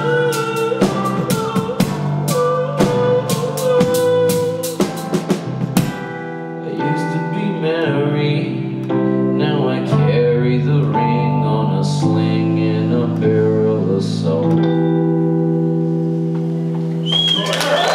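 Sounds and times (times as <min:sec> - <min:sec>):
drum hits: 0:00.0 - 0:06.3
electric keyboard chords: 0:00.0 - 0:17.1.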